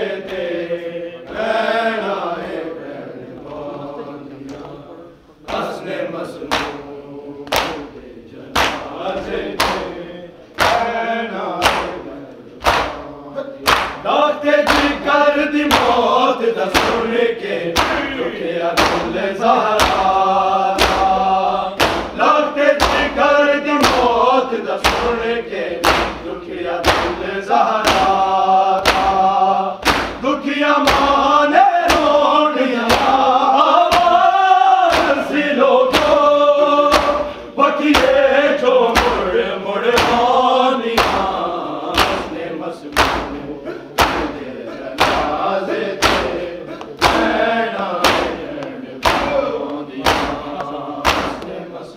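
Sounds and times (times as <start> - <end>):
group chanting in unison: 0.0 - 51.9
chest-beating thumps: 15.7 - 17.1, 18.8 - 19.2, 20.8 - 22.2, 25.8 - 27.2, 27.8 - 31.2, 34.9 - 36.3, 36.9 - 38.3, 38.9 - 51.6.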